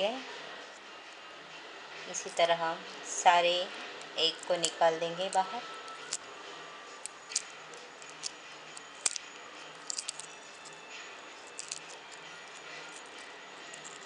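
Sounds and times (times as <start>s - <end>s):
eggshell cracking and peeling: 9.0s - 10.7s, 11.5s - 12.6s.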